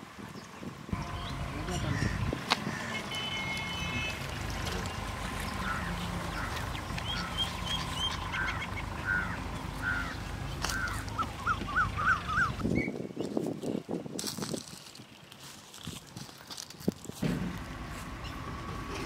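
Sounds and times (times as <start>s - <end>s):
birds calling: 0.3s - 13.9s
higher bird chirps: 1.0s - 13.0s.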